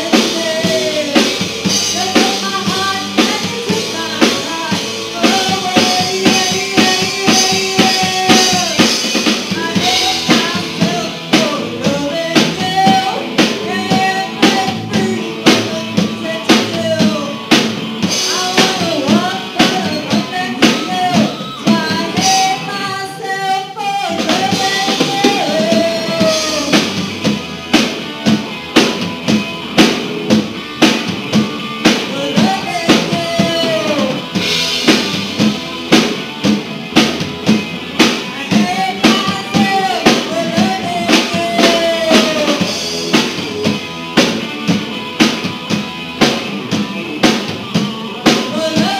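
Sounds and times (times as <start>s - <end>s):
lead vocal singing: 0.0s - 27.2s, 31.8s - 35.1s, 38.0s - 43.2s, 47.7s - 48.9s
bass guitar: 0.0s - 48.9s
drum kit beat: 0.0s - 48.9s
electric guitars: 0.0s - 48.9s.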